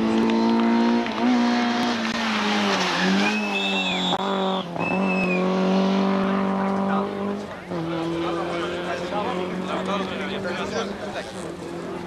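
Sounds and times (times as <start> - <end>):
car engine at high revs: 0.0 - 12.0.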